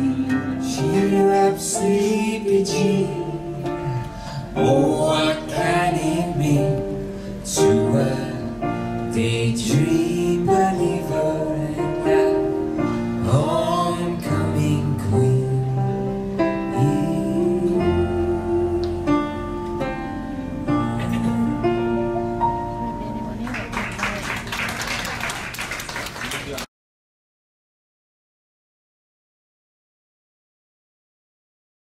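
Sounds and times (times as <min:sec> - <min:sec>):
electric keyboard chords: 0:00.0 - 0:24.5.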